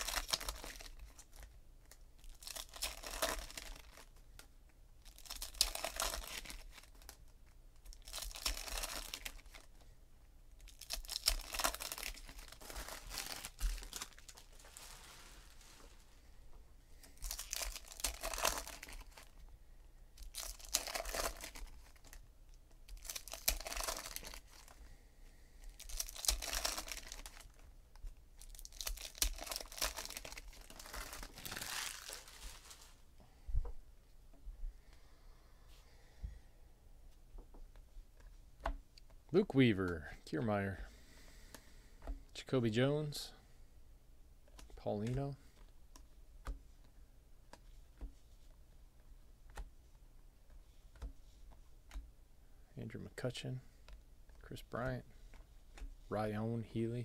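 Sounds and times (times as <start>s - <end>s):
foil wrappers tearing and crinkling: 0.0s - 1.5s, 2.2s - 4.2s, 5.0s - 7.2s, 7.9s - 9.7s, 10.6s - 16.0s, 17.2s - 19.4s, 20.2s - 22.2s, 22.9s - 24.8s, 25.7s - 27.6s, 28.4s - 33.0s.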